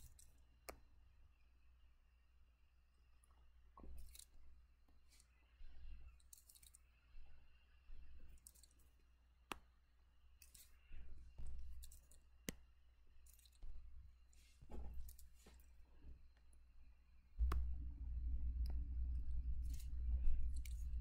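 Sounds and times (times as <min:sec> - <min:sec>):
low hum: 0:16.8 - 0:21.0.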